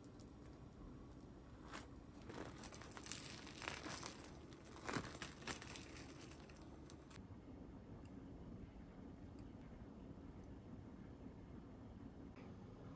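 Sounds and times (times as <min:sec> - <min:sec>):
faint crinkling and rustling: 0:00.0 - 0:07.2.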